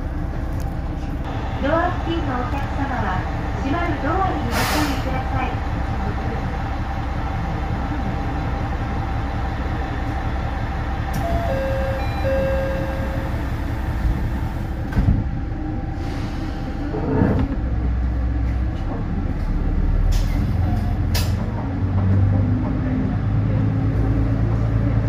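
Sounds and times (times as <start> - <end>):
diesel railcar engine idling: 0.0 - 25.0
short steady tones: 11.2 - 13.8.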